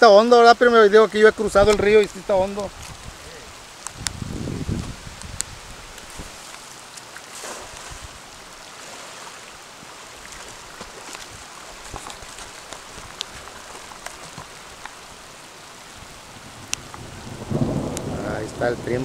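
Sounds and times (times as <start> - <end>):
rain falling on a river: 0.0 - 19.0
raindrop ticks: 1.4 - 7.3, 10.3 - 15.1, 16.6 - 19.0
cast net splashing into water: 7.0 - 8.2.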